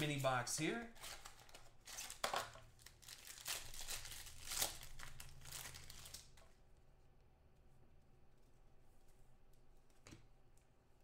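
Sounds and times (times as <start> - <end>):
cellophane wrapping crinkling: 0.0 - 6.5.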